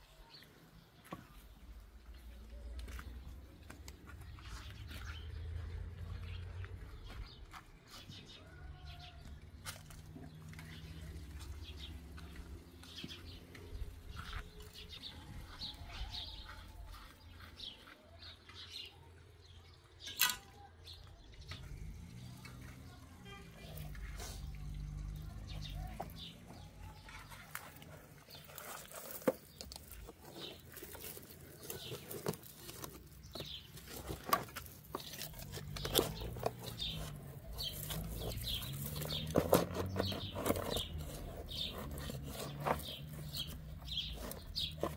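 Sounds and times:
small birds chirping: 0:00.0 - 0:44.9
trowel scraping soil: 0:22.4 - 0:44.9.

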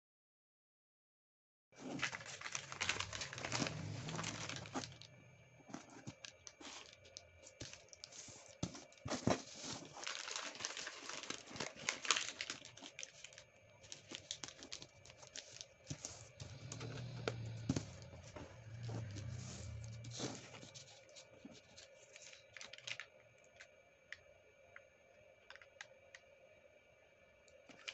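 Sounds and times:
paper crackling: 0:01.8 - 0:05.1, 0:05.7 - 0:23.1
paper rustling and crinkling: 0:01.8 - 0:05.1, 0:05.7 - 0:23.7.

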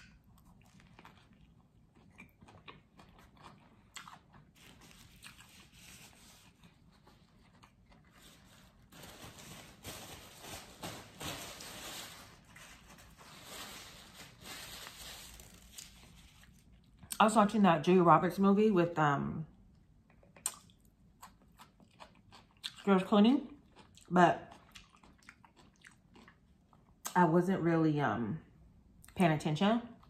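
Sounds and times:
chewing sandwich: 0:00.0 - 0:08.8, 0:20.0 - 0:27.2
paper napkin crinkling: 0:04.6 - 0:16.7.

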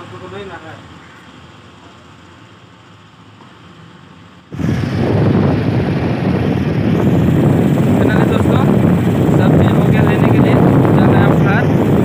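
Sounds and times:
wind buffeting microphone: 0:04.5 - 0:12.0.

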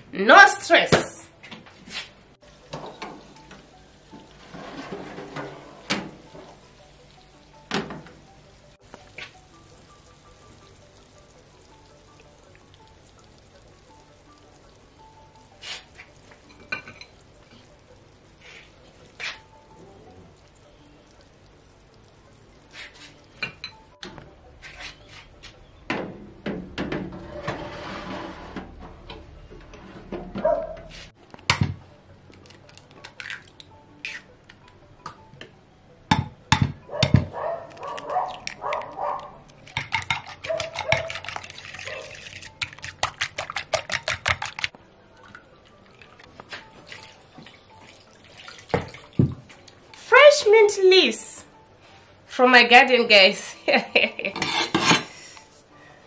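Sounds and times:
utensils and dishes clinking: 0:15.6 - 0:17.7, 0:22.8 - 0:23.9, 0:36.6 - 0:44.7, 0:54.2 - 0:55.2
eggs beaten with fork: 0:37.7 - 0:44.8.

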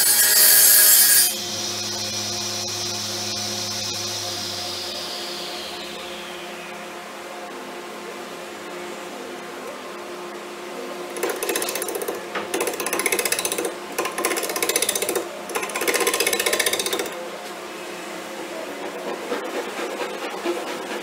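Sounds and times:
tool scraping spinning wood: 0:00.0 - 0:06.1, 0:11.1 - 0:17.2, 0:18.8 - 0:21.0
wood lathe running: 0:00.0 - 0:06.8, 0:11.1 - 0:17.2.

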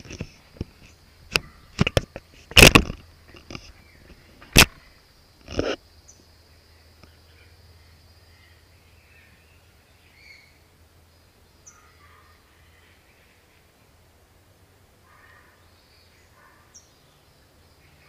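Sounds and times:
faint bird chirps: 0:06.0 - 0:14.0.

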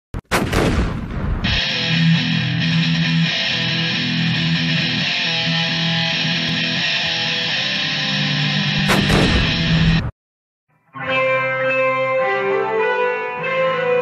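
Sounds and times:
instrumental guitar music: 0:01.5 - 0:09.9, 0:10.8 - 0:12.6.

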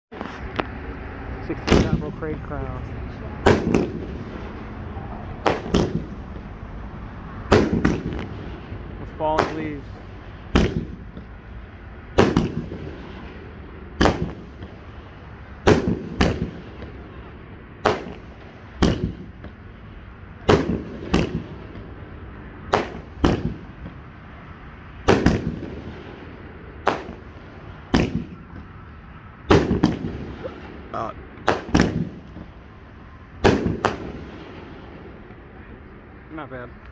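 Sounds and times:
fireworks bangs with echo: 0:01.5 - 0:02.5, 0:03.4 - 0:06.6, 0:07.4 - 0:11.4, 0:12.1 - 0:19.6, 0:20.4 - 0:21.9, 0:22.7 - 0:24.1, 0:25.0 - 0:28.8, 0:29.5 - 0:32.6, 0:33.4 - 0:35.2.

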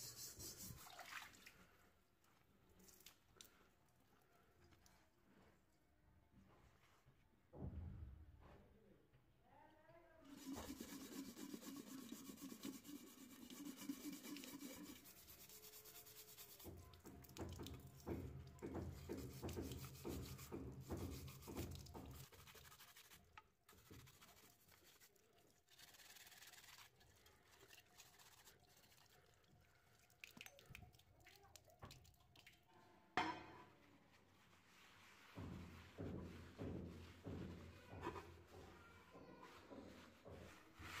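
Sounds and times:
running water: 0:00.3 - 0:01.8
scrubbing metal pan: 0:10.3 - 0:17.2, 0:17.8 - 0:27.0.

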